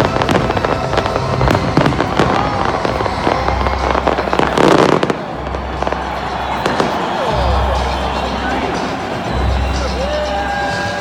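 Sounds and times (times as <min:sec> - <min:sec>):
fireworks crackling and banging: 0:00.0 - 0:07.8.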